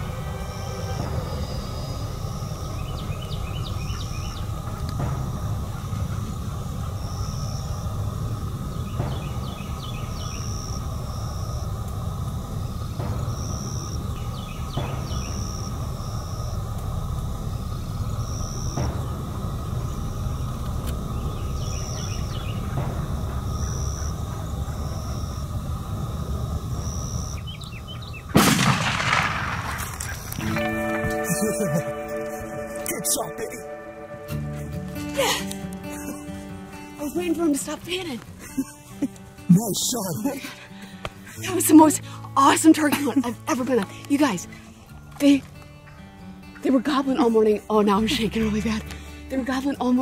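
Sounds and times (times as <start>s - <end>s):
steady low rumble: 0.0s - 39.4s
shotgun blast: 28.4s - 30.3s
short high note repeating: 30.4s - 35.4s.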